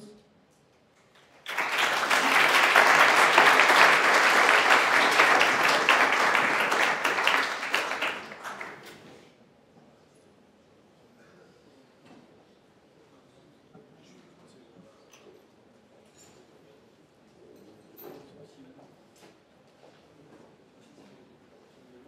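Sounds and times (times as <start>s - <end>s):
audience applauding: 1.1s - 9.1s.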